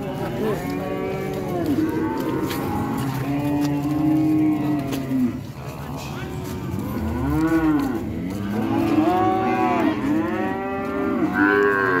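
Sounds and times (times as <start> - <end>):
calves mooing: 0.6 - 5.4, 7.0 - 12.0.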